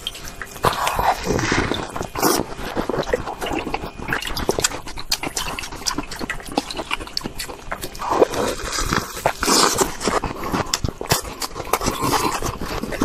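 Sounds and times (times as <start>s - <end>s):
ice crunching and crackling: 0.0s - 13.0s
wet sucking and slurping: 0.0s - 13.0s.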